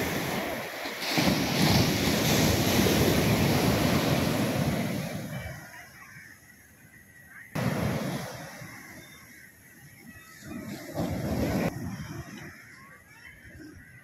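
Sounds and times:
surf breaking on sand: 0:00.0 - 0:05.7, 0:07.6 - 0:09.4, 0:10.4 - 0:12.0
wind on microphone: 0:10.4 - 0:12.7.

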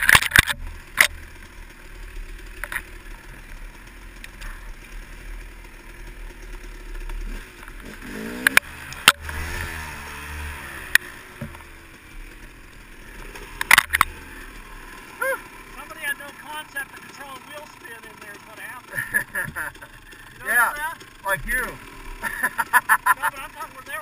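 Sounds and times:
dirt bike engine rumbling: 0:00.0 - 0:24.0
sharp knocks over bumps: 0:10.9 - 0:11.8.

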